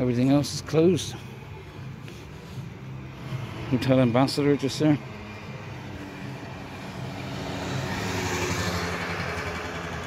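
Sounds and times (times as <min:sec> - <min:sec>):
car passing by: 0:02.2 - 0:10.0.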